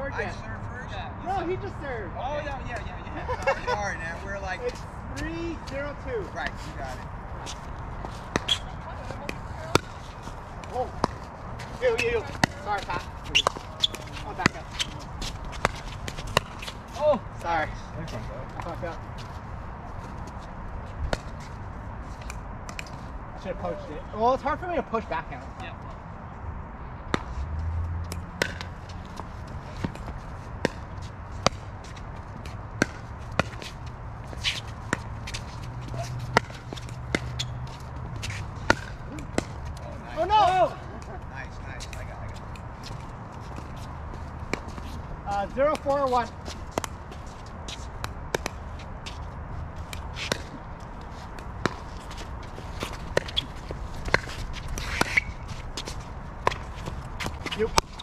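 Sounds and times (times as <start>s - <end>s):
ball bouncing on hard court: 8.0s - 16.8s, 28.1s - 39.7s, 51.4s - 52.2s, 52.8s - 58.0s.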